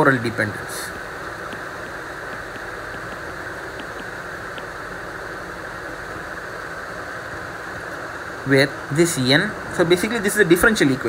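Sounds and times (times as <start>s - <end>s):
room noise hiss: 0.0s - 11.0s
stylus tapping on tablet: 1.2s - 6.4s.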